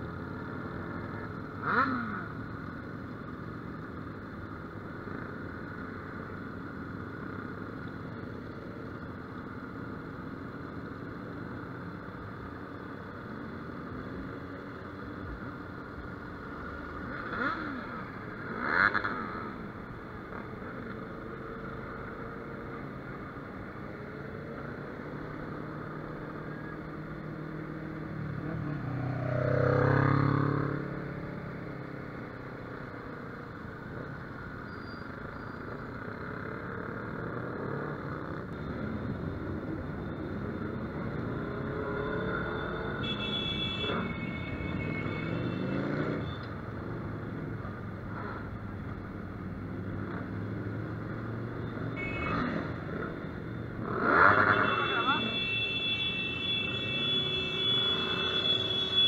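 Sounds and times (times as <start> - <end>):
wind and road noise: 0.0 - 59.0.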